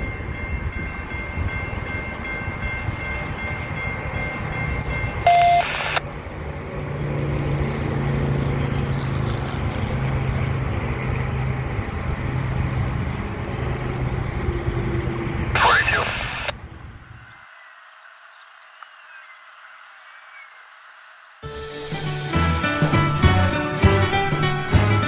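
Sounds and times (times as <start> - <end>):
railroad crossing bell ringing: 0.0 - 8.5, 19.8 - 25.0
low rumble of traffic: 0.0 - 17.4.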